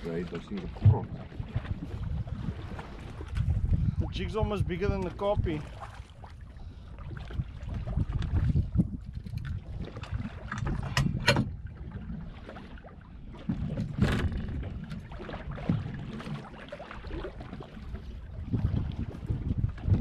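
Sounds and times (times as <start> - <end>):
wind buffeting microphone: 0.0 - 12.2, 17.4 - 20.0
water slapping boat hull: 0.0 - 20.0.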